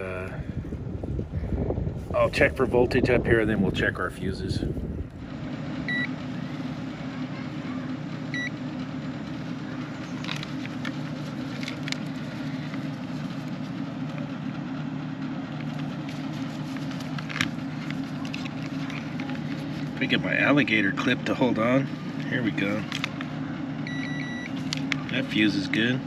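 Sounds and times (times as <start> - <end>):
low machine hum: 0.0 - 26.0
clamp meter beeps: 5.9 - 6.1, 8.3 - 8.5, 23.8 - 24.5.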